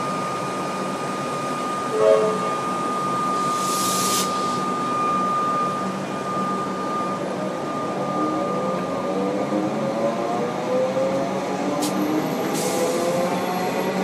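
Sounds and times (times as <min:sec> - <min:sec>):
electric train whine: 0:00.0 - 0:14.0
air hiss: 0:03.4 - 0:04.6.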